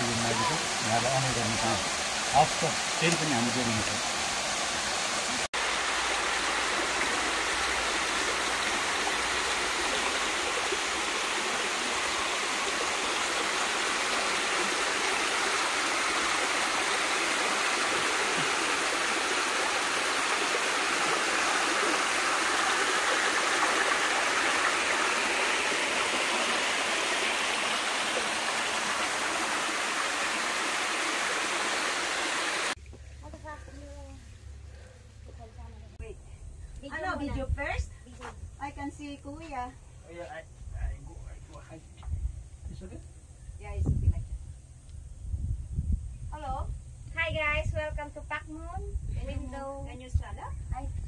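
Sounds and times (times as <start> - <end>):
stream rushing over rocks: 0.0 - 32.8.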